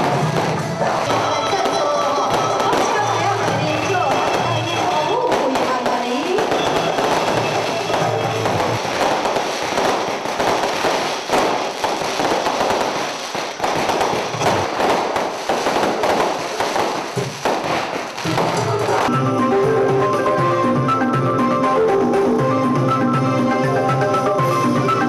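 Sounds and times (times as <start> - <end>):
firecrackers crackling: 0.0 - 19.2.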